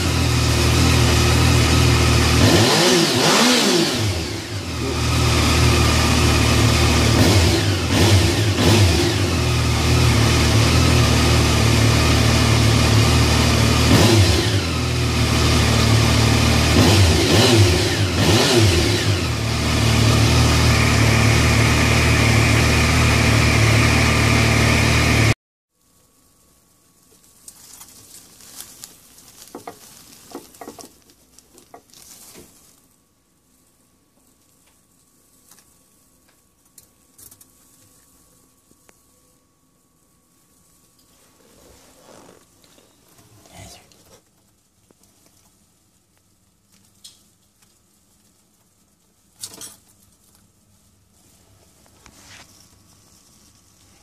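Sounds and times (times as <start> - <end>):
motorcycle engine revving: 0.0 - 25.4.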